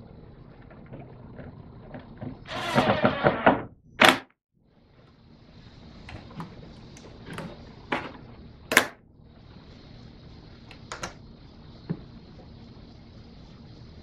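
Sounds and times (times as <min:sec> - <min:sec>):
steady hiss: 0:04.6 - 0:14.0.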